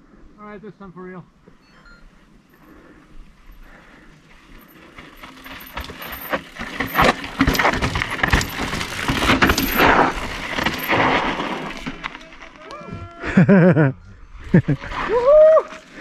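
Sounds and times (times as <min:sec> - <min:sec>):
bike tyres crunching on rock: 0:04.2 - 0:12.8, 0:14.5 - 0:16.0
bike wheels and frame knocking: 0:04.5 - 0:12.7.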